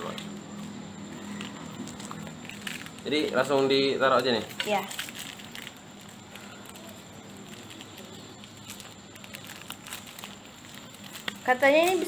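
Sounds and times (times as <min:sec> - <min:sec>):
foil sachets tearing and rustling: 0:00.0 - 0:12.0.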